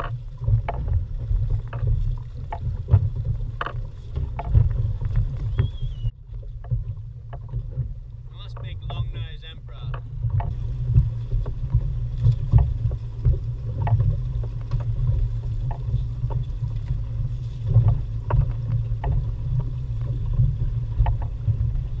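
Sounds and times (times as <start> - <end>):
water slapping against hull: 0.0 - 22.0
wind buffeting microphone: 0.0 - 22.0.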